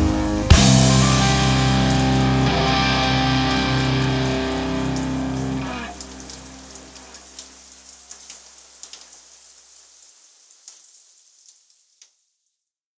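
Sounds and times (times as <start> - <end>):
low bass note: 0.0 - 7.0
electric guitar chord ringing: 0.0 - 7.3
crackling patter of clicks: 4.9 - 12.3.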